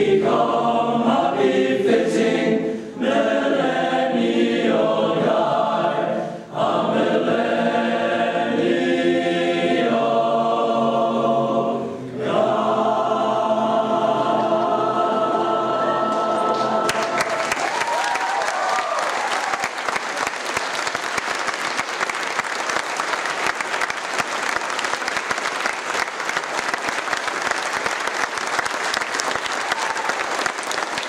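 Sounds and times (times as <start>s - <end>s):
male choir singing: 0.0s - 17.3s
applause: 16.5s - 31.0s.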